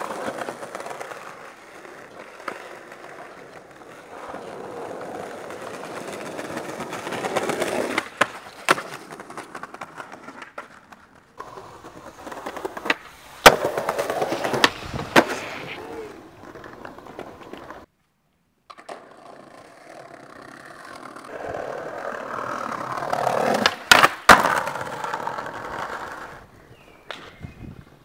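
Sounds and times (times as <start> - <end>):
skateboard clacks: 0.0 - 17.9, 18.7 - 26.4
skateboard wheels rolling on stone: 0.0 - 17.9, 18.6 - 28.0
skateboard landing slap: 6.0 - 17.8, 23.2 - 25.7, 27.1 - 27.5.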